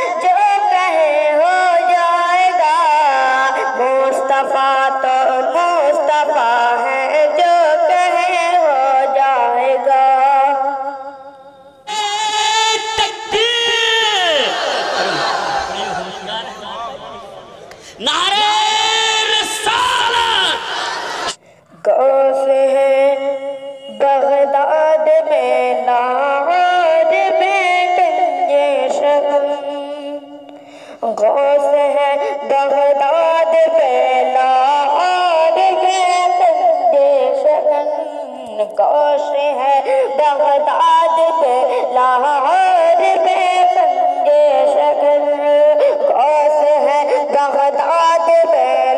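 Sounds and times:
wordless sung melody: 0.0 - 48.9
held vocal sound: 11.2 - 22.2
person singing solo: 17.9 - 23.1.

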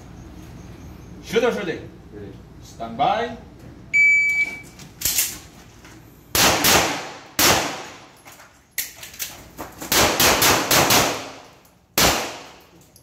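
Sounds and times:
handgun shots: 6.4 - 8.0, 9.9 - 12.7.

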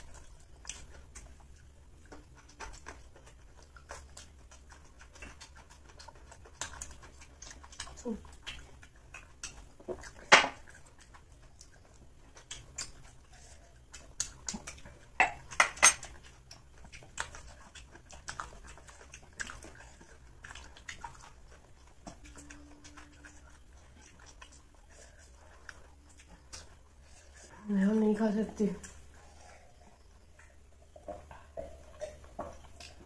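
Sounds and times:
people chewing: 0.0 - 33.0
dishes clinking: 15.2 - 16.1.

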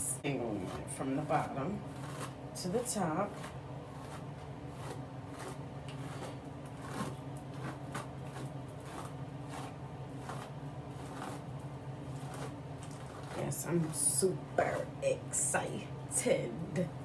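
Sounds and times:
steady low hum: 0.0 - 17.0
hairbrush swishing through hair: 0.2 - 11.5.

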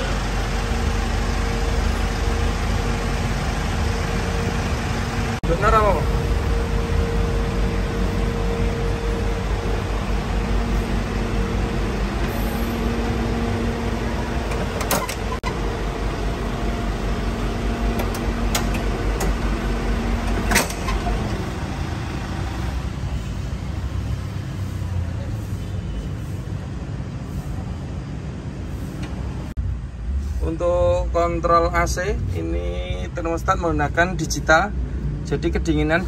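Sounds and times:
truck engine idling: 0.0 - 26.4.

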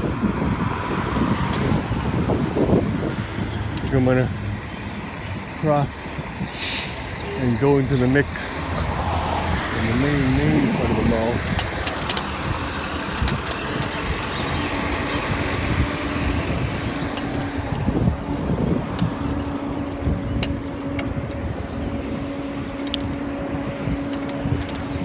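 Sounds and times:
wind on microphone: 0.0 - 7.3, 8.2 - 25.0
bicycle road rumble: 0.0 - 25.0
motor vehicle engine running: 0.0 - 25.0
clicks and rattles: 3.7 - 4.2, 10.8 - 16.0, 16.8 - 21.8, 22.7 - 23.3, 23.9 - 25.0.

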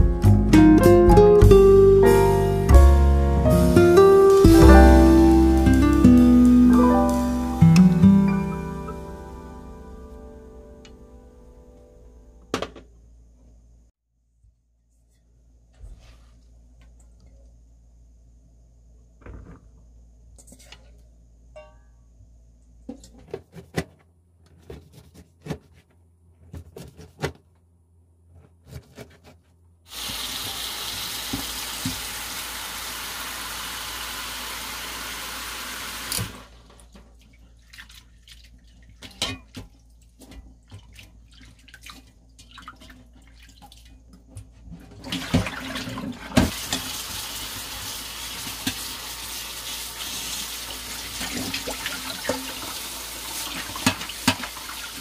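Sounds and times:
water splashing in pot: 29.9 - 36.4, 45.0 - 55.0
tap running into sink: 30.0 - 32.2.

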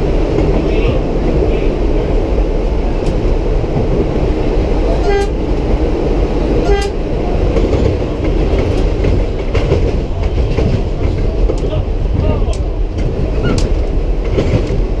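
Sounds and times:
subway train rumbling on tracks: 0.0 - 15.0
train horn toots: 5.0 - 5.4, 6.6 - 7.0.

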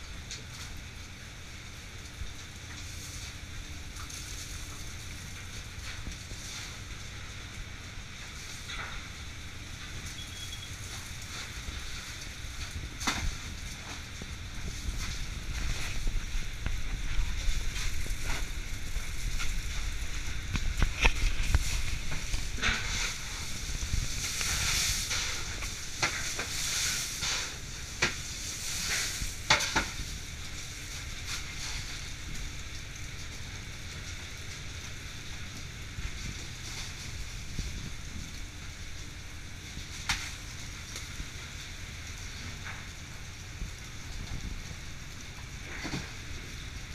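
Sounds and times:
fish rustling hiss: 2.8 - 33.2
low rumble: 3.4 - 46.9.

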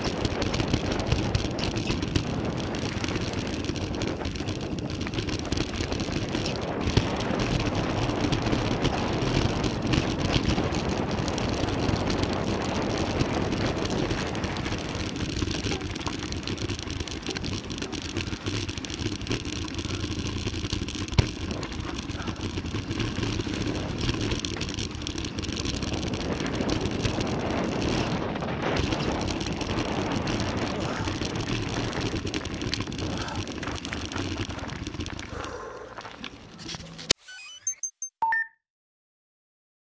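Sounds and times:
tyre and wind rush: 0.0 - 37.0
bike knocking and rattling: 0.0 - 37.1.

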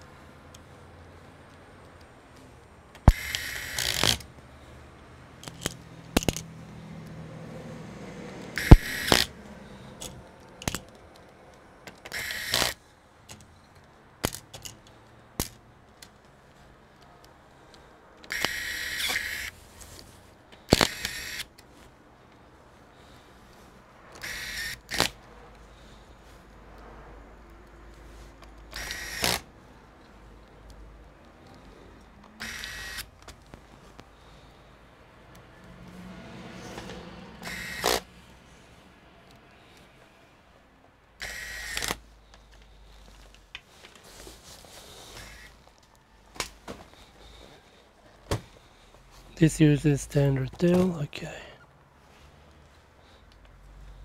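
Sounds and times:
sharp clicks: 3.0 - 4.4, 8.4 - 16.3, 18.2 - 19.5, 28.5 - 29.5, 37.4 - 38.1, 41.2 - 42.7
electric screwdriver whirring: 3.1 - 4.3, 8.6 - 9.4, 12.1 - 12.8, 18.3 - 19.6, 20.7 - 21.5, 24.2 - 25.2, 28.7 - 29.5, 32.4 - 33.1, 37.4 - 38.1, 41.2 - 42.0, 45.2 - 45.6.

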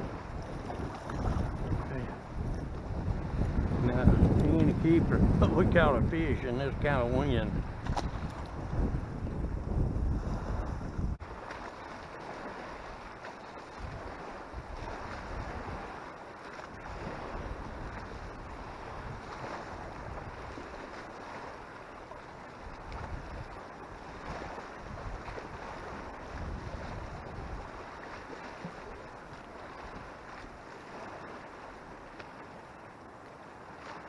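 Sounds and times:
wind buffeting microphone: 0.0 - 32.2
choppy lake water: 0.0 - 34.0.

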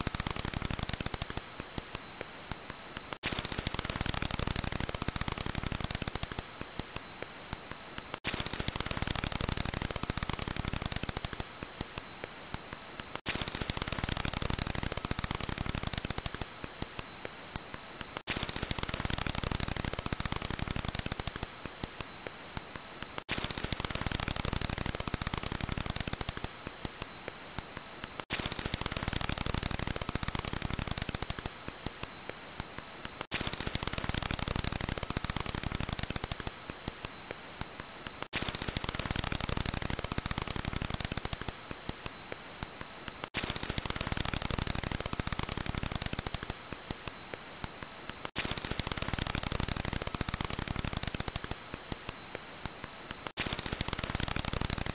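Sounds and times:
bat calls as rapid high clicks: 0.0 - 54.9.

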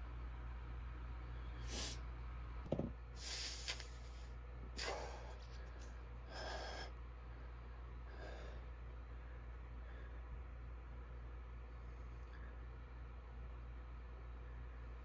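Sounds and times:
steady low hum: 0.0 - 15.0
man breathing hard: 4.7 - 10.8.

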